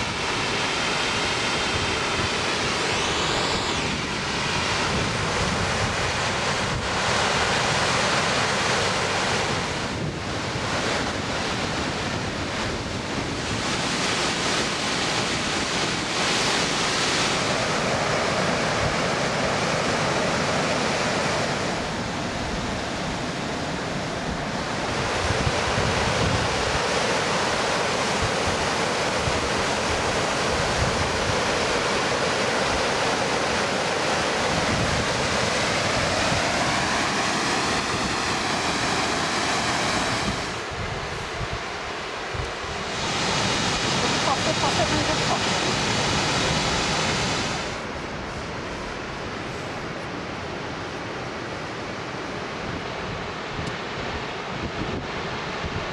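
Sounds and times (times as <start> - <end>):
river rushing over rapids: 0.0 - 55.9
wind buffeting microphone: 1.4 - 7.4, 9.4 - 16.3, 24.1 - 27.0.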